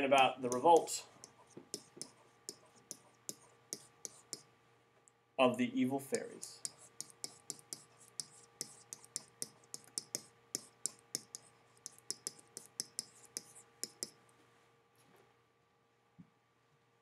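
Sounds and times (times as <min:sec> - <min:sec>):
faint steady hum: 0:00.0 - 0:17.0
stylus clicking on writing surface: 0:00.5 - 0:04.5, 0:06.6 - 0:14.2.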